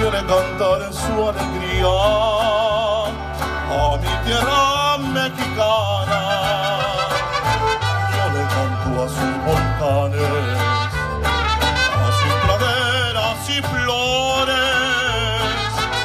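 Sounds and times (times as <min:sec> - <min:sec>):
deep bass line: 0:00.0 - 0:16.0
strummed guitars: 0:00.0 - 0:16.0
melody with strong vibrato: 0:06.1 - 0:16.0.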